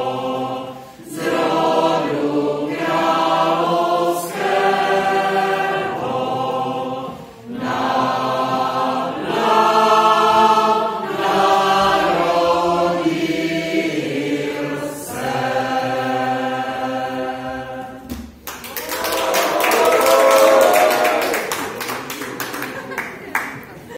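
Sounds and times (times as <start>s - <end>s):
mixed choir singing: 0.0s - 18.2s
people clapping: 18.1s - 23.9s
people cheering: 18.6s - 23.9s.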